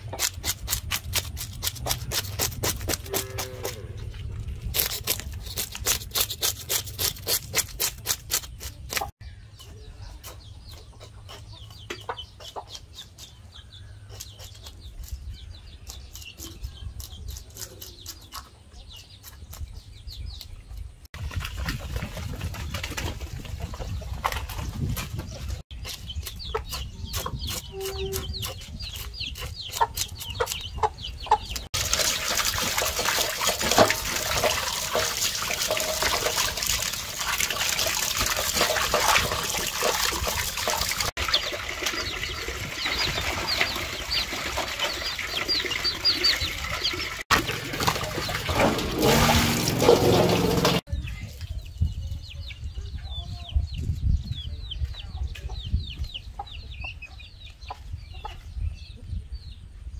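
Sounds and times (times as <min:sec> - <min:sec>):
knife scraping fish scales: 0:04.6 - 0:09.1
chicks peeping: 0:08.7 - 0:31.8, 0:41.1 - 0:59.7
water pouring: 0:31.8 - 0:50.8.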